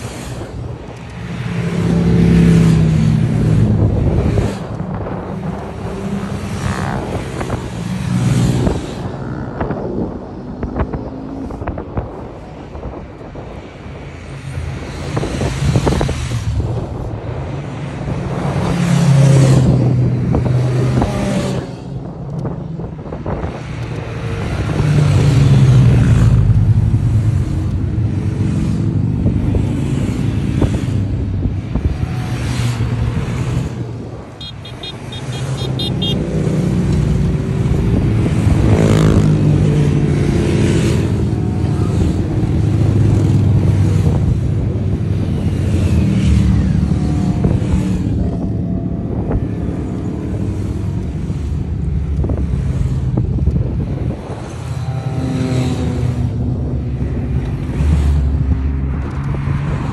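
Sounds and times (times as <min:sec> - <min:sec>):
motorcycles riding past: 0:01.2 - 0:11.8, 0:23.2 - 0:59.9.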